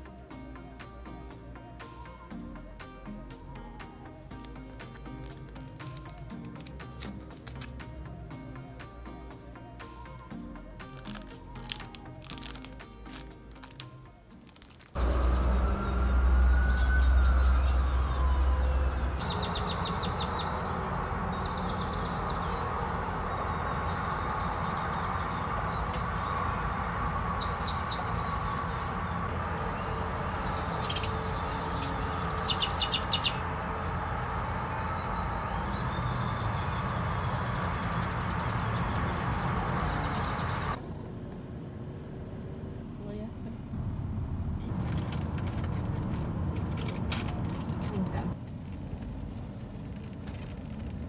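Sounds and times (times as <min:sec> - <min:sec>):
small birds chirping: 0:19.0 - 0:26.5, 0:27.3 - 0:33.6.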